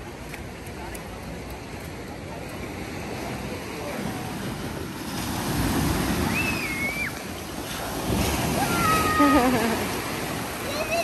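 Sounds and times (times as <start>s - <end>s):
small waves washing in: 0.0s - 11.0s
high-pitched voice cry: 8.6s - 9.8s.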